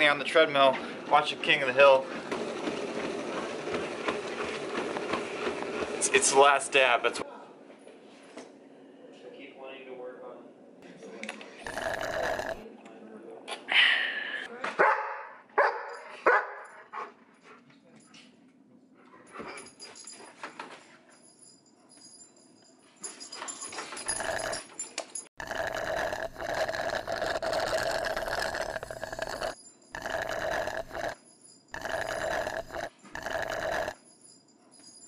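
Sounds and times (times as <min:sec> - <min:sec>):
slurping through a straw: 0:11.6 - 0:12.6, 0:24.1 - 0:24.7, 0:25.4 - 0:31.2, 0:31.8 - 0:34.0.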